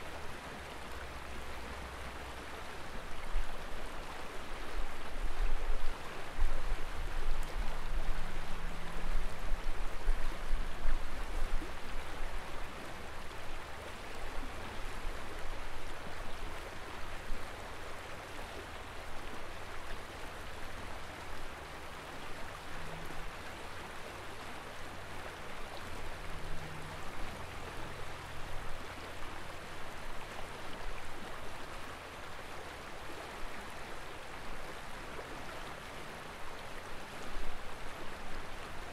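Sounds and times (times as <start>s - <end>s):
river water rushing: 0.0s - 38.9s
wind rumbling on microphone: 4.6s - 17.6s.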